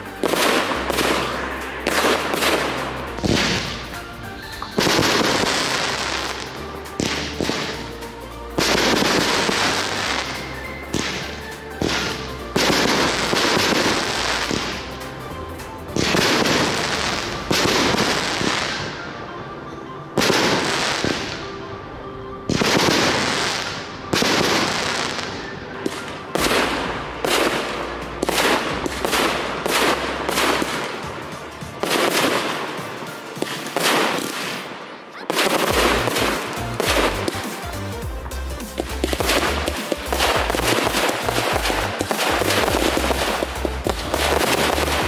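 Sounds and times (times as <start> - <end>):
rapid crackling firework bursts: 0.0 - 18.9, 22.5 - 45.0
firework shells bursting: 26.4 - 45.0.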